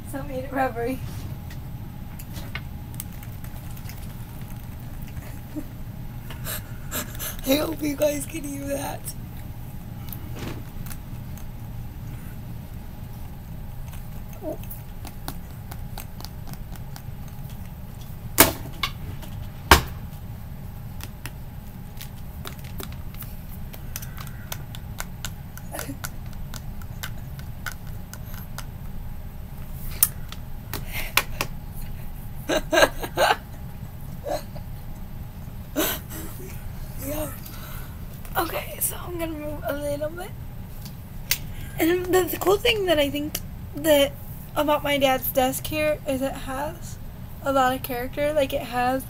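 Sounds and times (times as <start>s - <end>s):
steady low hum: 0.0s - 49.0s
sharp snaps: 22.0s - 29.0s, 40.8s - 41.5s.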